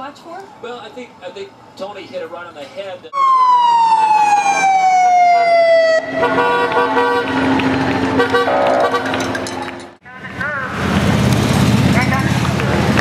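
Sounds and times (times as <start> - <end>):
passing vehicle noise: 0.0 - 13.0
siren wailing: 3.1 - 9.2.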